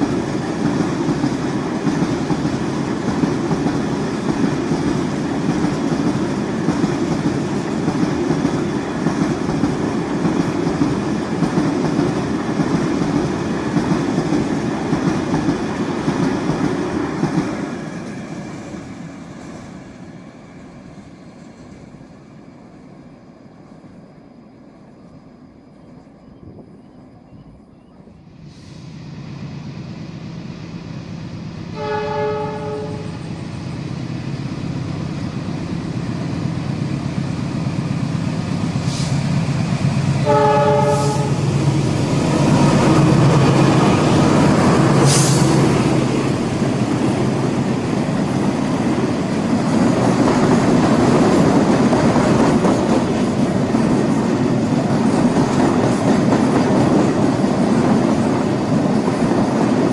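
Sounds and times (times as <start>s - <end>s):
train wheels on rails: 0.0s - 26.7s, 27.9s - 59.9s
locomotive horn: 31.8s - 33.2s, 40.2s - 41.5s.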